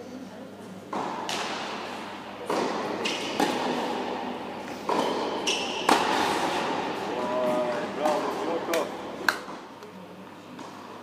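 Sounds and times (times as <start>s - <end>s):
tennis ball struck by rackets: 0.9s - 7.0s.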